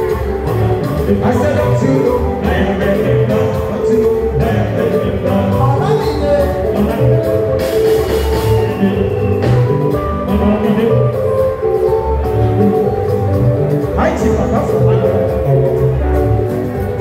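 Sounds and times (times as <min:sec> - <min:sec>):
live band music: 0:00.0 - 0:17.0
repeating bass line: 0:00.0 - 0:17.0
person singing: 0:00.5 - 0:13.3.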